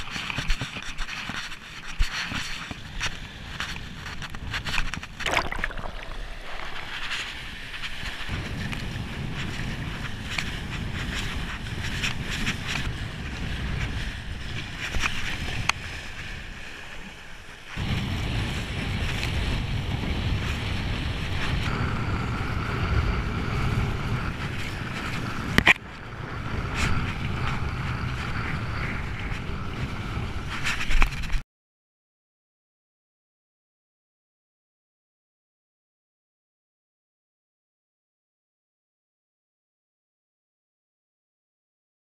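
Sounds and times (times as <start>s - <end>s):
wind buffeting microphone: 0.0s - 17.2s, 17.8s - 31.4s.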